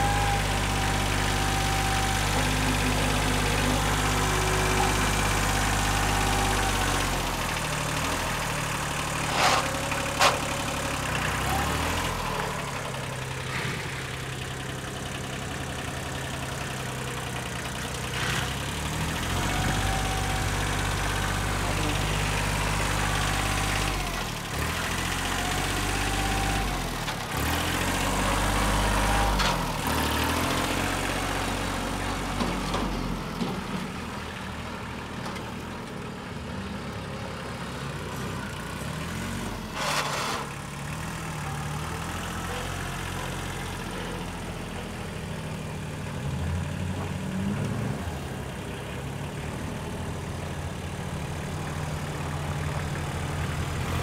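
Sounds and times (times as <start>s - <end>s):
tractor diesel engine running: 0.0s - 54.0s.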